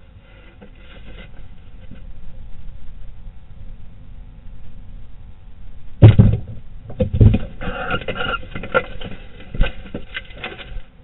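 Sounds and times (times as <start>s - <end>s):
feet and wings scratching wood: 0.0s - 2.2s, 7.3s - 11.0s
owl rough call: 7.6s - 8.5s.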